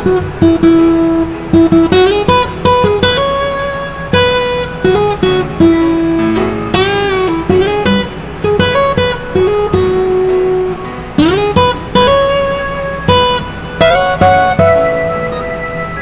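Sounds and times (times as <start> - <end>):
acoustic guitar music: 0.0 - 16.0.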